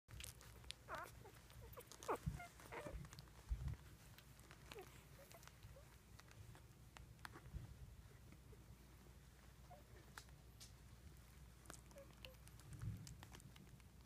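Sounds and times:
puppies squeaking and whimpering: 0.1s - 6.6s, 11.2s - 12.6s.

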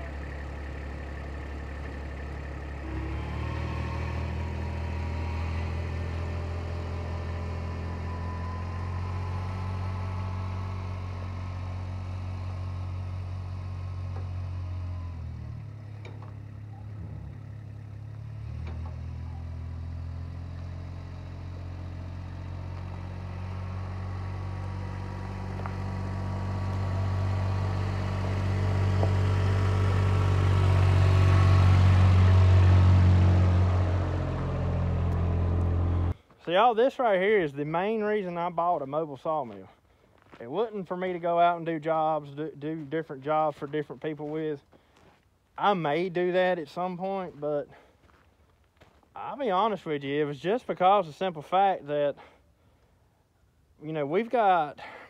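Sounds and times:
vehicle engine running: 0.0s - 36.2s.

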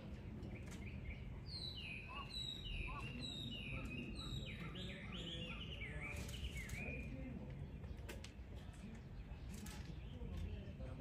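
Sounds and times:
cheetah chirping: 0.6s - 7.1s.

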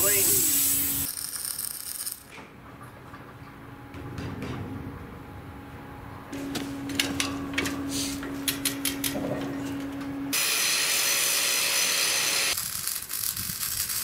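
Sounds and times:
loud steady hiss: 0.0s - 1.2s
steady hum: 2.5s - 12.6s
chain hoist ratchet clicks: 12.5s - 14.0s.

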